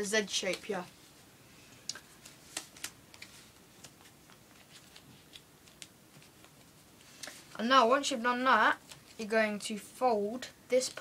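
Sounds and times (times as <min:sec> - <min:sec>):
paper being folded and creased: 0:02.2 - 0:07.4.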